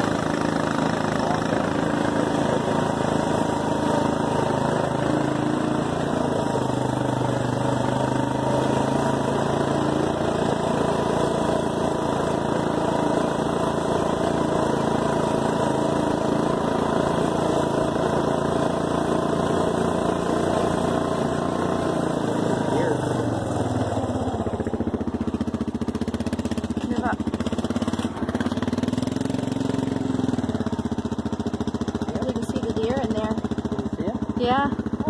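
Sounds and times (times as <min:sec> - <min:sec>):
atv engine running: 0:00.0 - 0:35.0.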